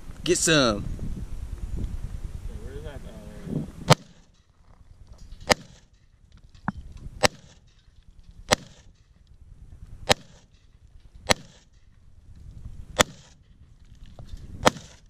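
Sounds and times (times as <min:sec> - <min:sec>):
rifle shots with echo: 0:03.9 - 0:04.3, 0:05.4 - 0:05.9, 0:07.2 - 0:07.7, 0:08.4 - 0:09.0, 0:10.0 - 0:10.6, 0:11.2 - 0:11.8, 0:13.0 - 0:13.4, 0:14.6 - 0:15.0.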